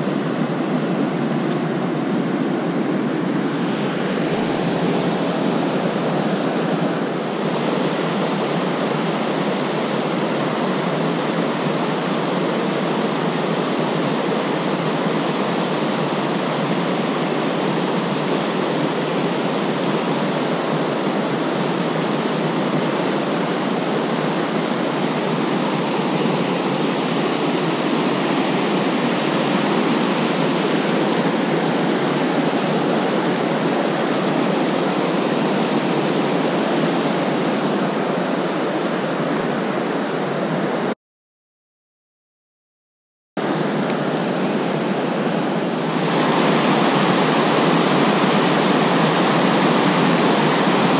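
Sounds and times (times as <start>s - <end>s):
whitewater rushing over rocks: 0.0s - 40.9s, 43.4s - 50.9s.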